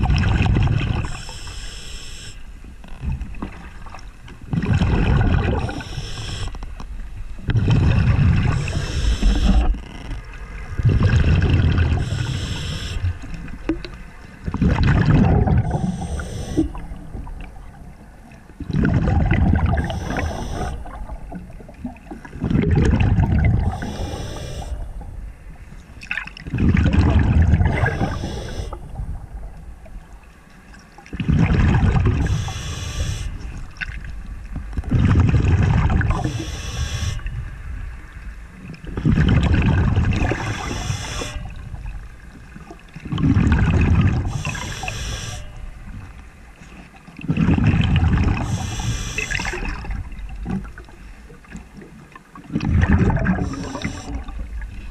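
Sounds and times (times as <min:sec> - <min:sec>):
regulator airflow hiss: 0:01.1 - 0:02.4, 0:05.6 - 0:06.5, 0:08.5 - 0:09.6, 0:12.0 - 0:13.1, 0:15.7 - 0:16.8, 0:19.8 - 0:20.8, 0:23.7 - 0:24.8, 0:27.7 - 0:28.8, 0:32.3 - 0:33.4, 0:36.2 - 0:37.3, 0:40.4 - 0:41.5, 0:44.3 - 0:45.6, 0:48.4 - 0:49.6, 0:53.4 - 0:54.2
bubbles gushing on exhale: 0:04.5 - 0:05.9, 0:07.5 - 0:09.8, 0:10.7 - 0:12.4, 0:14.4 - 0:17.6, 0:18.6 - 0:25.0, 0:26.0 - 0:29.5, 0:31.1 - 0:34.0, 0:34.8 - 0:36.5, 0:38.9 - 0:41.6, 0:43.0 - 0:44.9, 0:47.2 - 0:50.8, 0:52.4 - 0:54.9.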